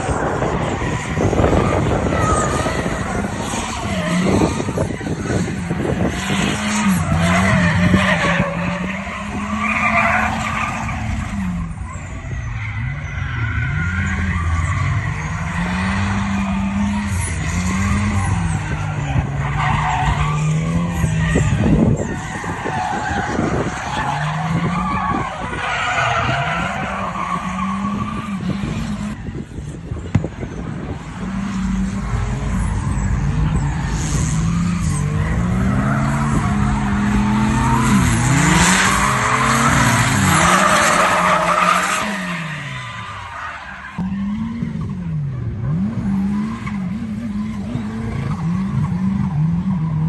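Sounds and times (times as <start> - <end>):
car engine revving: 30.2 - 50.0.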